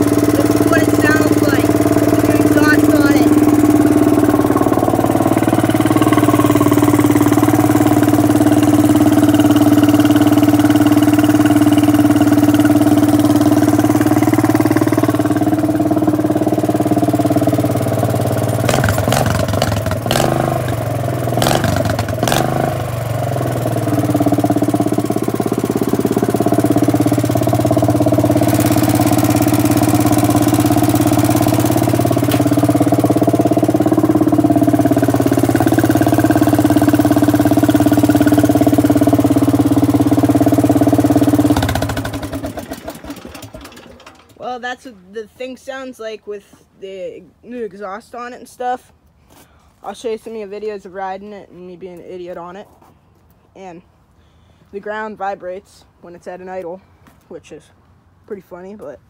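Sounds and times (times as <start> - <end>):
garden tractor engine running: 0.0 - 46.2
sharp engine knocks: 32.1 - 33.0.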